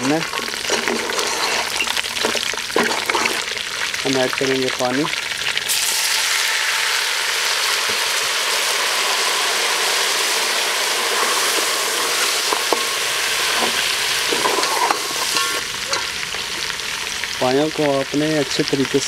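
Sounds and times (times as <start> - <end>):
oil sizzling and hissing: 0.0 - 19.0.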